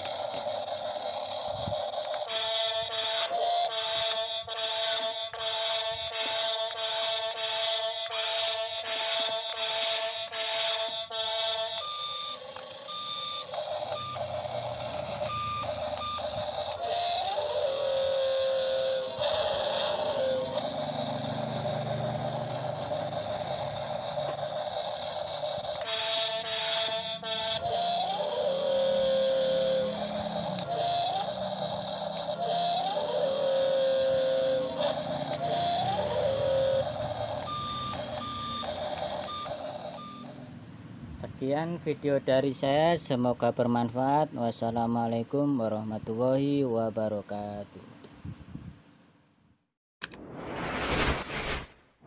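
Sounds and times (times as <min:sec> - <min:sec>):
small motor whirring: 0:00.0 - 0:40.3
toy reversing alarm beeps: 0:00.0 - 0:40.4
electronic warning beep: 0:11.8 - 0:17.1, 0:35.8 - 0:40.4.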